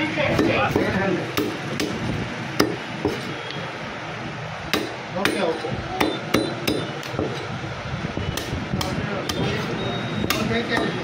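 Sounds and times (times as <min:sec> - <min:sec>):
cleaver chopping on wooden block: 0:00.3 - 0:02.0, 0:02.6 - 0:03.2, 0:04.7 - 0:07.4, 0:10.3 - 0:11.0.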